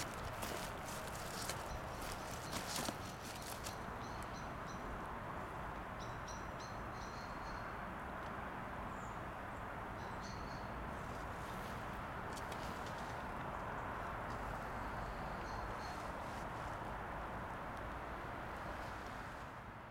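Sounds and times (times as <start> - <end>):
small bird chirping: 0.0 - 4.8
outdoor background hiss: 0.0 - 19.9.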